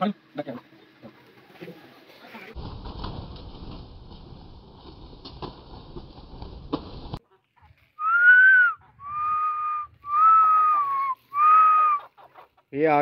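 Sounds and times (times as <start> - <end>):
person whistling long notes: 8.0 - 12.0
rustling noise: 9.0 - 11.6.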